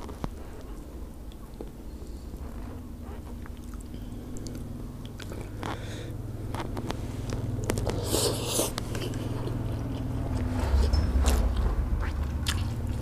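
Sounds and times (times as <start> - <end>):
wet chewing: 0.0 - 5.9, 6.5 - 13.0
fingers picking at food: 6.5 - 13.0.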